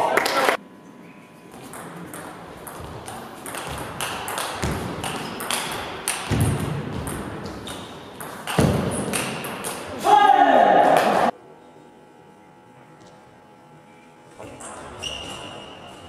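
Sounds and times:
table tennis ball hits: 0:01.7 - 0:09.9.

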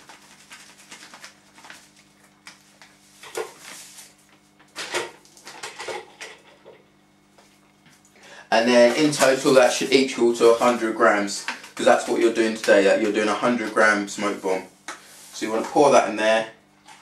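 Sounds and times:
plastic bag rustling: 0:00.0 - 0:06.1, 0:08.6 - 0:15.6.

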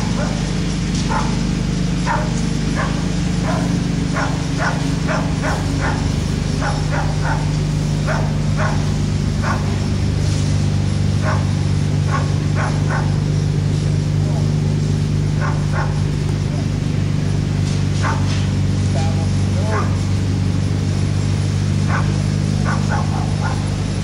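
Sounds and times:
dog barking: 0:00.0 - 0:09.9, 0:11.2 - 0:13.4, 0:15.2 - 0:16.6, 0:18.0 - 0:18.4, 0:19.0 - 0:20.1, 0:21.8 - 0:23.8
steady low hum: 0:00.0 - 0:24.0.

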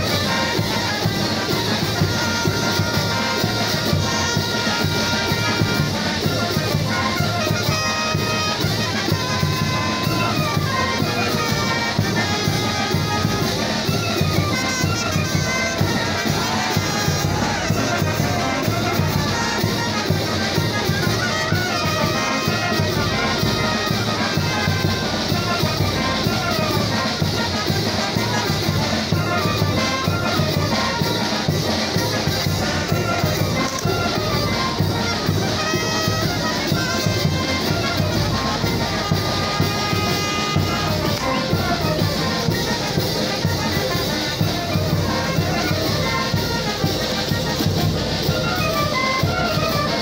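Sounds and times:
brass band playing dance tune: 0:00.0 - 0:50.0.

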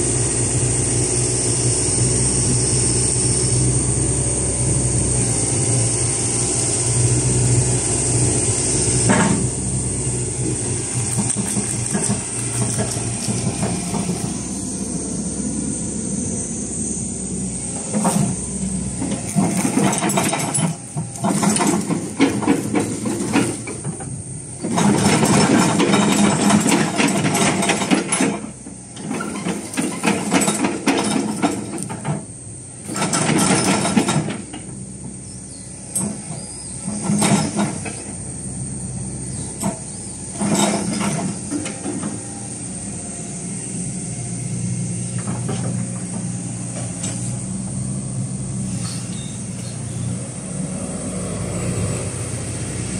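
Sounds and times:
loud rushing hissing noise: 0:00.0 - 0:24.7, 0:37.6 - 0:52.9
diesel engine humming: 0:00.0 - 0:52.9.

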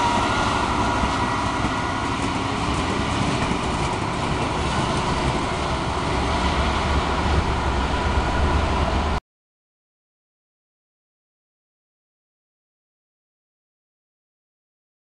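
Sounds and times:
freight train wheels rumbling: 0:00.0 - 0:09.2.

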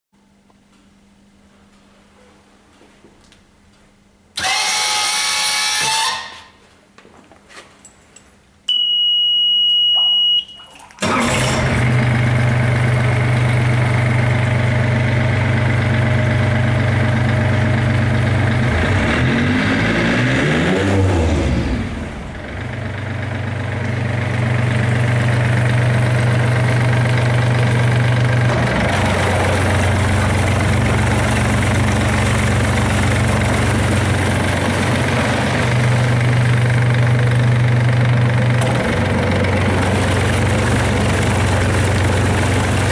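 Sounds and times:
high steady beep: 0:08.7 - 0:10.7
diesel outboard engine idling: 0:11.0 - 0:18.8, 0:21.5 - 0:42.9.

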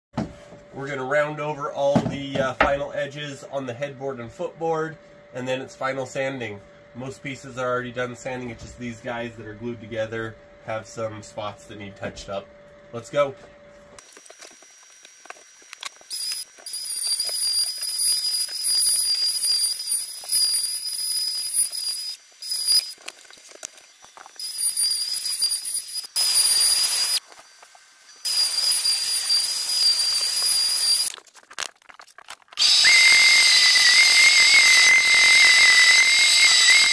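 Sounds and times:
orbit sander whine: 0:04.7 - 0:31.1, 0:32.6 - 0:36.9
router whining: 0:14.0 - 0:31.1, 0:32.6 - 0:36.9.

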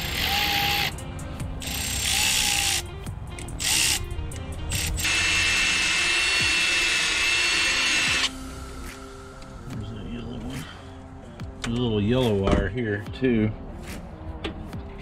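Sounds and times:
power tool motor whine: 0:00.0 - 0:00.9, 0:01.6 - 0:02.8, 0:04.7 - 0:08.4
faint background music: 0:00.0 - 0:15.0.

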